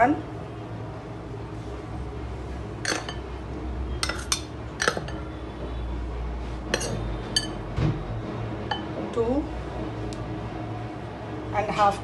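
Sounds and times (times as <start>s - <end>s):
spoon clinking against glass bowls: 2.8s - 3.3s, 4.0s - 5.3s, 6.7s - 7.6s, 8.7s - 8.9s.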